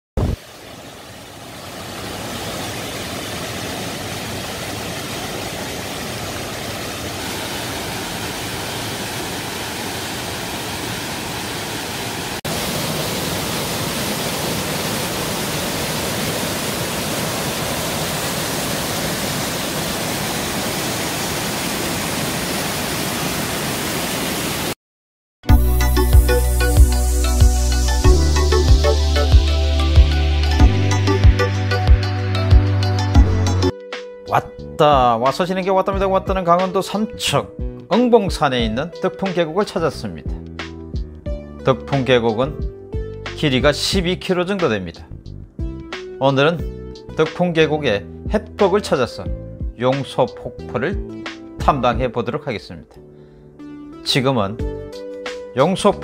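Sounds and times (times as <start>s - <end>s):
waterfall rushing: 0.2s - 24.8s.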